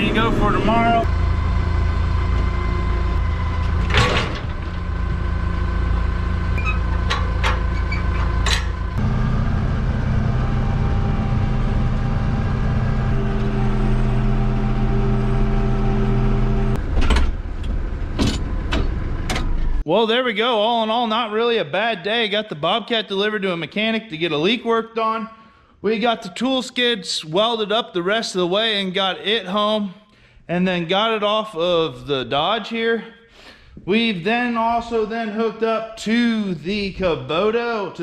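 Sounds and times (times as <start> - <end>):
tractor diesel engine running: 0.0 - 19.9
knocks and clanks: 3.2 - 5.5, 6.5 - 9.0, 16.8 - 19.8.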